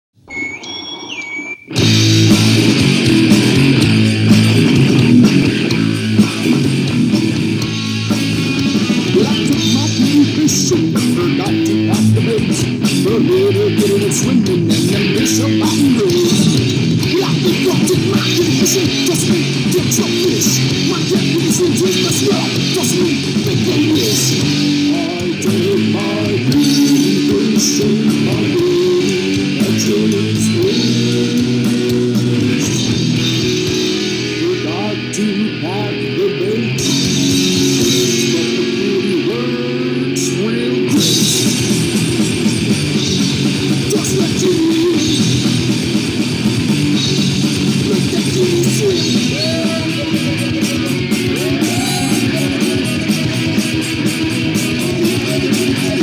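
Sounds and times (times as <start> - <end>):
distorted heavy metal guitar music: 0.2 - 56.0.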